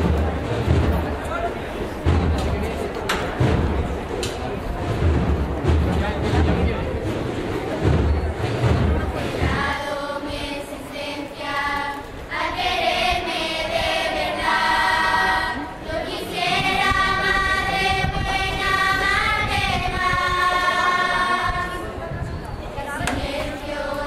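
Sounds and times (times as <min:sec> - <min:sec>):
children's choir singing: 0:08.4 - 0:22.1, 0:22.7 - 0:24.0.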